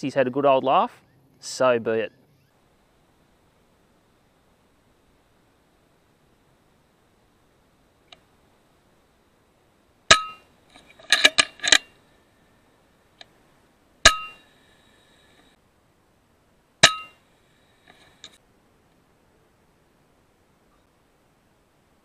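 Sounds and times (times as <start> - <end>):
rifle lever clicks: 10.8 - 11.9.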